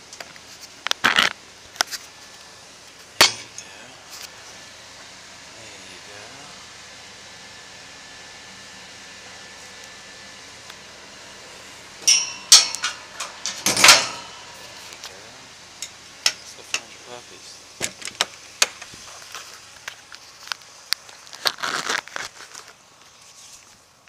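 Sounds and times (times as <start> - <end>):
metal kennel door clanking: 12.0 - 14.3.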